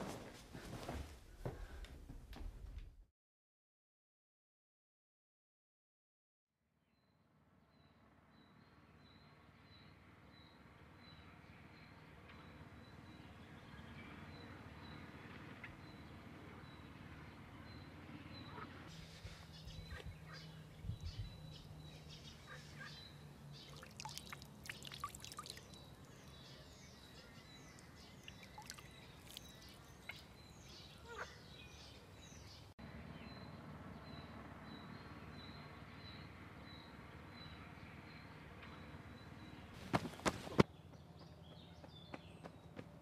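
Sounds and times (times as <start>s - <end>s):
small birds chirping: 11.2s - 42.9s
sharp footsteps: 39.8s - 40.7s.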